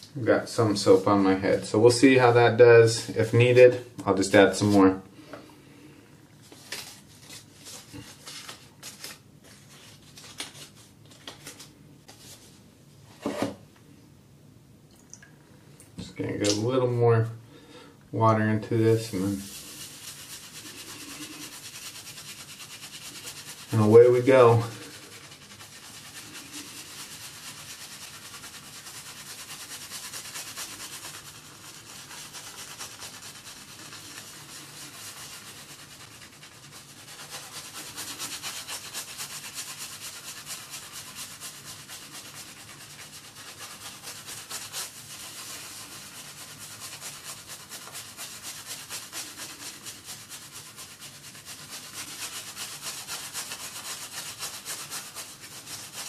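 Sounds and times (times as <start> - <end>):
shaving brush scrubbing scalp: 18.6 - 56.0.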